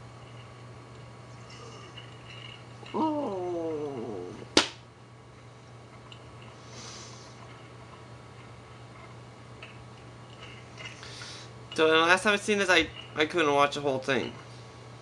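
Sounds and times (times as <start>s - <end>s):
faint low hum: 0.0s - 15.0s
man groaning: 2.9s - 4.5s.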